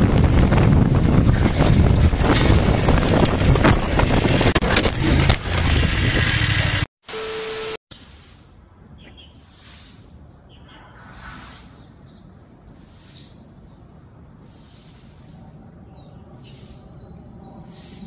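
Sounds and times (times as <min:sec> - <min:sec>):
wind buffeting microphone: 0:00.0 - 0:06.9
outdoor ambience: 0:00.0 - 0:18.0.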